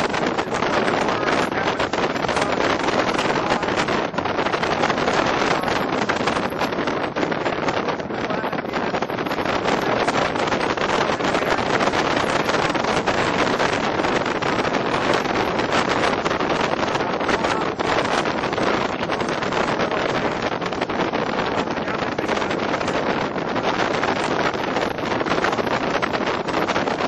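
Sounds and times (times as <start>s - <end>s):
wind buffeting the microphone: 0.0s - 27.0s.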